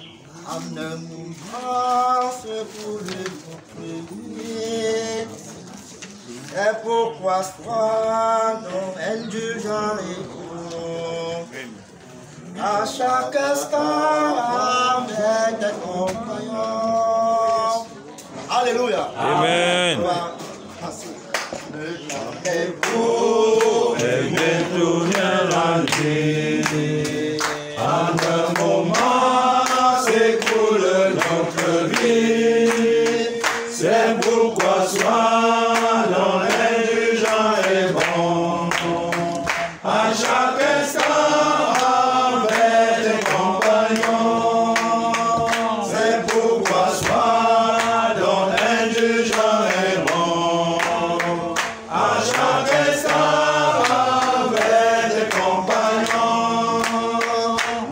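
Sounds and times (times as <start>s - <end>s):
group singing a hymn: 0.0s - 57.9s
sharp hand claps: 21.3s - 23.0s, 23.6s - 44.2s, 44.8s - 50.2s, 50.8s - 57.9s.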